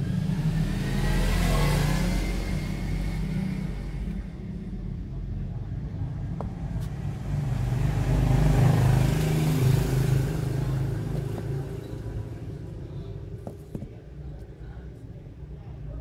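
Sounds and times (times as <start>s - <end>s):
vehicle engine passing by: 0.0s - 4.3s, 6.6s - 13.2s.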